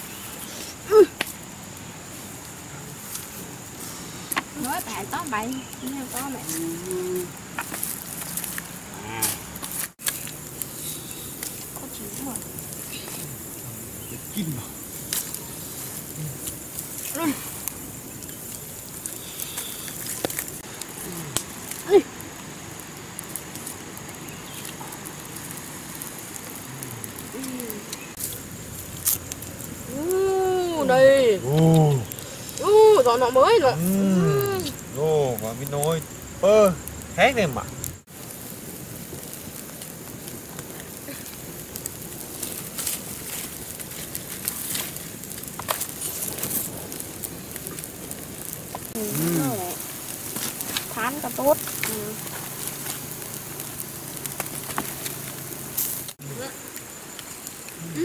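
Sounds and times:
campfire crackling: 0.0s - 58.0s
short low falling calls: 24.1s - 28.2s, 28.8s - 35.2s.

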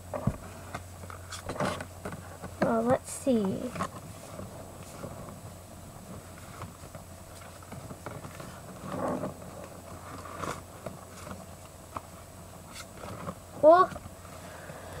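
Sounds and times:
background hum: 0.0s - 15.0s
cards rustling and clicking: 6.1s - 13.4s.

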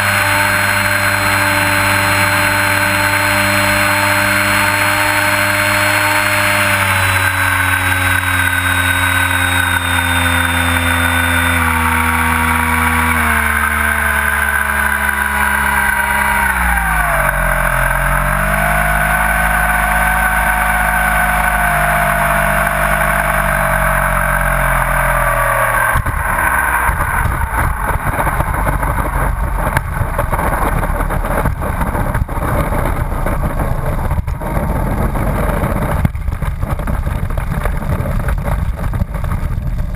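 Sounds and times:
model airplane motor: 0.0s - 39.9s
wheels rumbling on runway: 0.0s - 39.9s.

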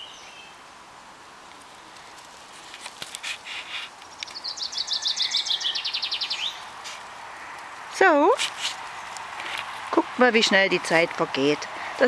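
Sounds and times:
soft rustles: 1.4s - 4.4s, 6.6s - 10.0s
songbird trilling: 3.5s - 6.7s.

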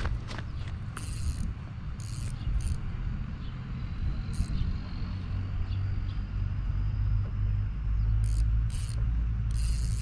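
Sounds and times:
low engine rumble: 0.0s - 10.0s
fishing reel clicks: 0.9s - 2.9s, 4.3s - 4.6s, 8.2s - 10.0s.

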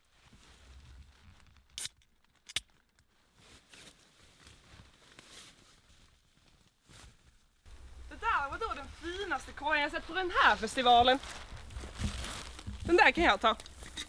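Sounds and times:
clothing and hands rustling: 2.8s - 14.0s.

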